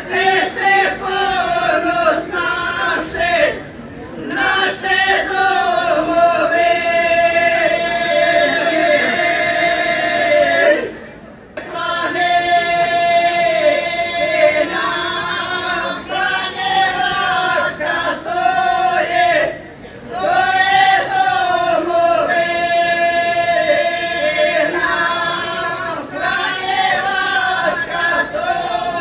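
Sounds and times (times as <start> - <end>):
women singing unaccompanied: 0.0 - 3.6, 4.2 - 11.0, 11.6 - 29.0.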